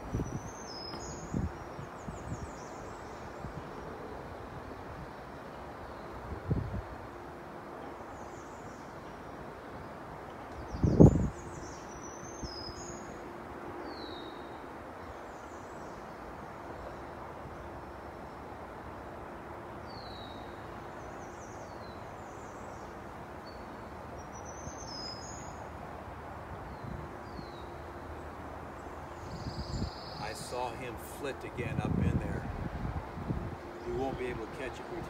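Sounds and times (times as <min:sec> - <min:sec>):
steady background hiss: 0:00.0 - 0:35.0
warblers singing: 0:29.2 - 0:32.0.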